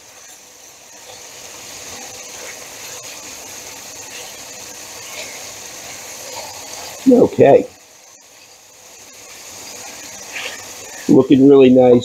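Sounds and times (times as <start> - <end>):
chicken sizzling in hot oil: 0.0 - 11.7.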